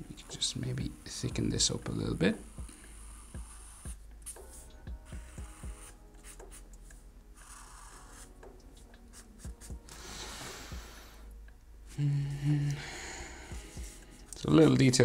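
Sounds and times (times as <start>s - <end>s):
marker scratching on paper: 2.4s - 10.0s.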